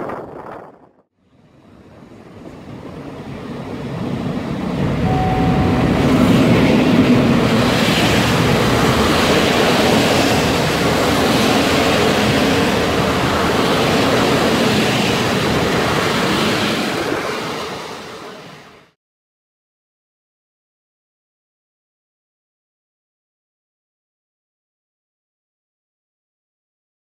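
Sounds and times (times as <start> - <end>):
train wheels rumbling on rails: 0.0 - 18.8.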